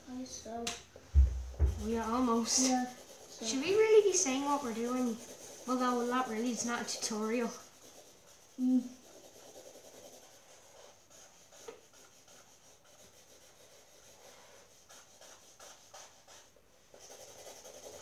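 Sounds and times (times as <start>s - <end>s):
felt-tip markers scratching on paper: 1.7s - 18.0s.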